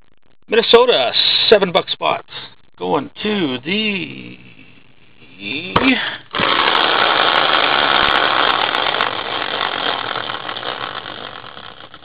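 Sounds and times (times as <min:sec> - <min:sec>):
caster wheel whirring: 0:06.3 - 0:12.0.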